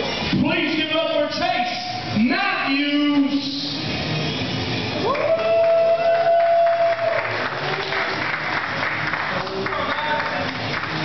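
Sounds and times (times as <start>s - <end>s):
crowd applauding: 5.0s - 11.0s.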